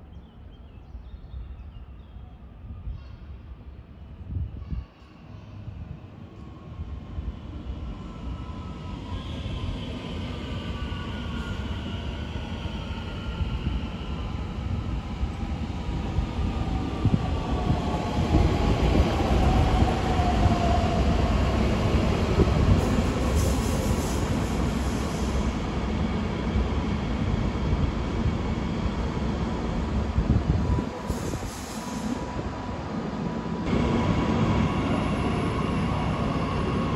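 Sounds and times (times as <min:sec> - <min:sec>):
train wheels rumbling on track: 0:09.6 - 0:32.6.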